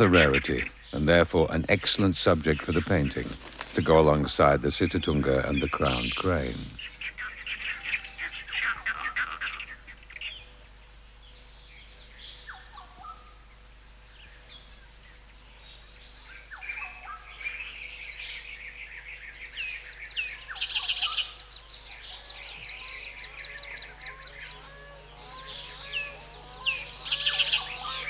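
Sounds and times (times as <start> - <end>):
birds chirping and whistling: 0.0 - 28.0
bird chattering trill: 4.4 - 10.6, 19.2 - 28.0.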